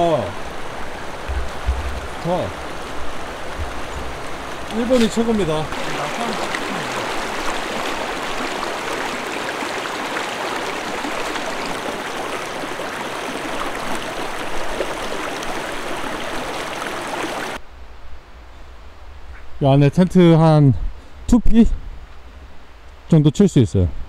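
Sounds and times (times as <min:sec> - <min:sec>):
creek water rushing: 0:00.0 - 0:17.6.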